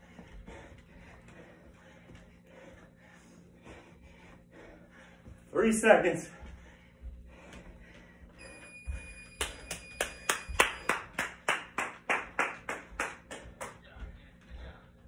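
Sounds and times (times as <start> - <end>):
electronic timer beeping: 8.4 - 10.9
hand claps: 9.3 - 13.9.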